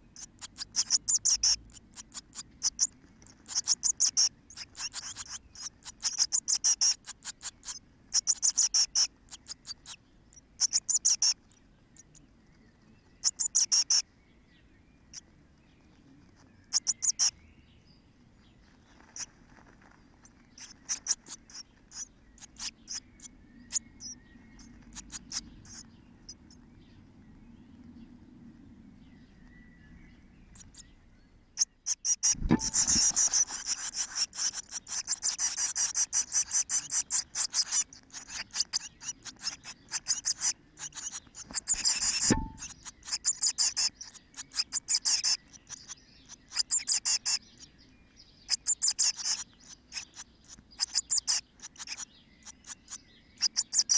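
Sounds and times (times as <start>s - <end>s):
nestlings cheeping: 0.0s - 12.2s, 13.1s - 14.0s, 16.6s - 17.4s, 20.2s - 26.5s, 31.6s - 47.5s, 48.5s - 53.9s
bird landing thumps: 32.4s - 33.2s, 42.1s - 42.6s.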